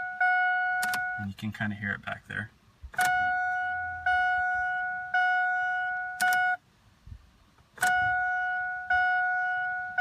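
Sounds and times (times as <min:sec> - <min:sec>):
dashboard warning chime: 0:00.0 - 0:01.6, 0:03.0 - 0:06.6, 0:07.8 - 0:10.0
ignition key click: 0:00.8 - 0:01.2, 0:02.9 - 0:03.6, 0:06.1 - 0:06.5, 0:07.8 - 0:08.2.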